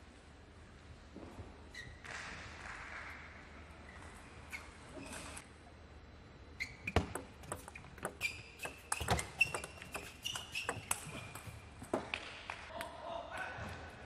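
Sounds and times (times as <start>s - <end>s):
shoes squeaking on floor: 6.6s - 11.6s.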